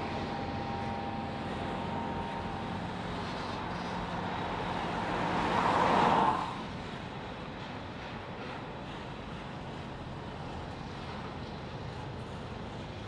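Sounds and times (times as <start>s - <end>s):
freight train wheels rumbling on rail: 6.6s - 13.0s.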